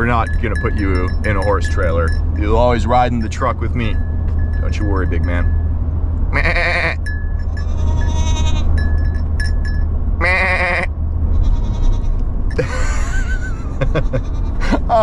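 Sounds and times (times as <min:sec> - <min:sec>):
truck hum: 0:00.0 - 0:15.0
goat bleating: 0:06.3 - 0:07.0, 0:07.6 - 0:08.7, 0:10.2 - 0:12.2, 0:14.1 - 0:15.0.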